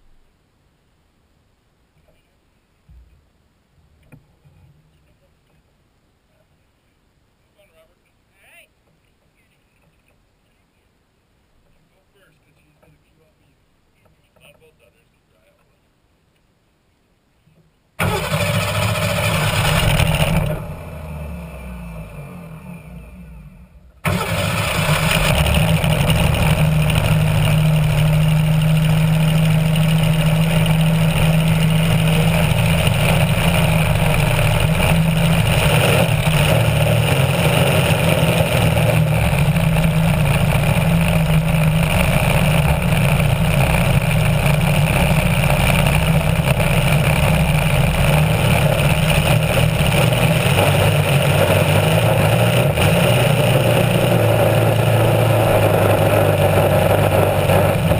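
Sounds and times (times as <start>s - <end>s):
racing boat engine at high revs: 18.0s - 57.9s.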